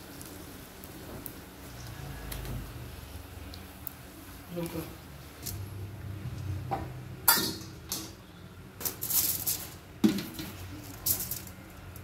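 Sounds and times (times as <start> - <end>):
kitchen utensils clattering: 7.3 - 8.2.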